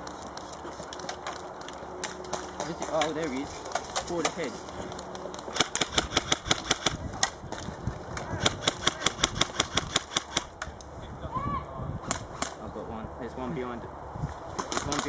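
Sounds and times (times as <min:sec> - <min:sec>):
airsoft guns firing: 0:05.5 - 0:07.4, 0:08.2 - 0:10.6, 0:14.6 - 0:15.0.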